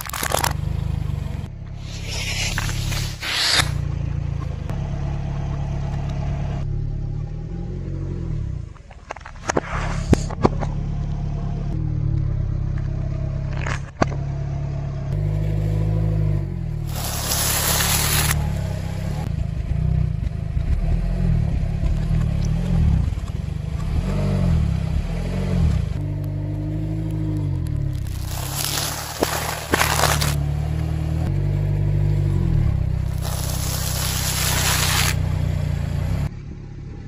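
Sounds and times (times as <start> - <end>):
sharp cracks under tyre: 0.0 - 0.9, 12.7 - 14.3, 16.9 - 18.5, 26.0 - 30.9, 33.0 - 35.3
wafers crunching under tyre: 0.0 - 0.9, 16.8 - 18.5, 26.0 - 31.3, 33.0 - 35.3
car engine running: 0.0 - 37.0.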